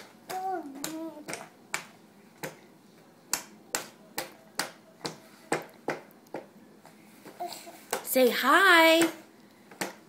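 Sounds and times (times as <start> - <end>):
hand slapping plastic tray: 0.2 - 2.6, 3.3 - 6.5.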